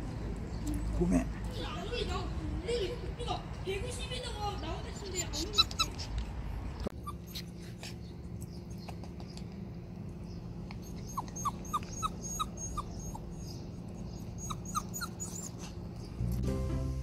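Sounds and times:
dog whimpering: 4.8s - 6.0s, 7.0s - 7.6s, 10.8s - 13.6s, 14.2s - 15.8s.

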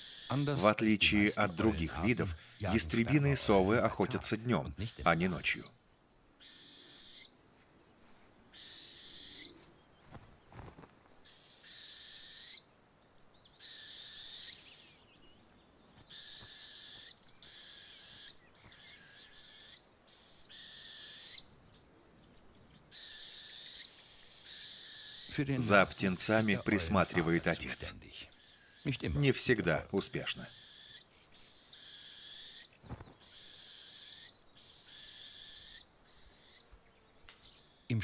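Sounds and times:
owl chicks hissing calls: 8.6s - 9.7s, 11.3s - 12.7s, 13.6s - 15.0s, 16.1s - 21.5s, 22.9s - 25.3s, 30.5s - 36.7s.

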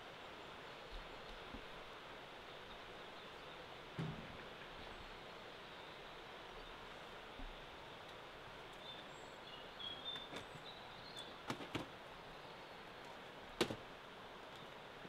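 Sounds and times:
sharp clicks or knocks: 13.6s - 13.8s.

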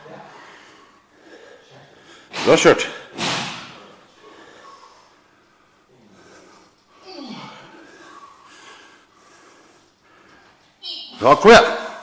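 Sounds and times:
man grunting: 7.0s - 7.7s.

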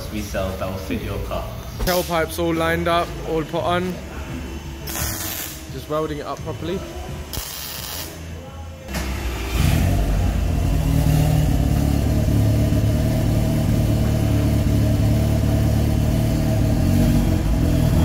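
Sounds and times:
car engine idling: 8.9s - 18.0s.

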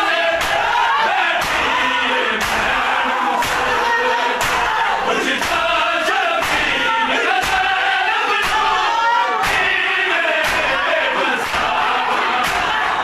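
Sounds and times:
men chanting in unison: 0.0s - 13.0s
chest beating slaps: 0.4s - 1.8s, 2.4s - 2.8s, 3.4s - 3.8s, 4.4s - 4.8s, 6.4s - 7.8s, 8.4s - 9.8s, 10.4s - 10.8s, 11.4s - 12.9s.

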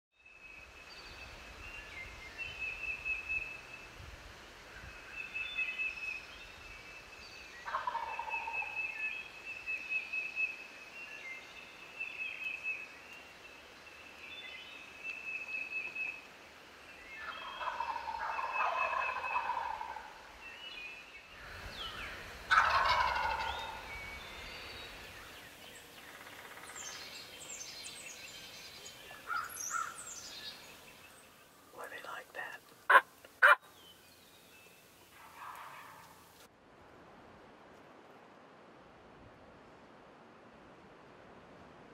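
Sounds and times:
turkey gobbling: 7.7s - 8.6s, 17.3s - 20.1s, 22.5s - 23.8s, 32.9s - 33.6s, 35.2s - 36.2s
songbird trilling: 28.8s - 31.2s, 31.9s - 33.9s.

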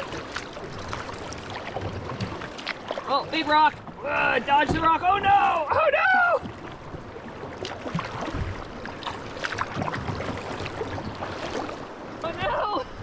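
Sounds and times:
small splashes and drips: 0.0s - 3.8s, 6.4s - 12.3s
river water rippling and splashing: 0.0s - 13.0s.

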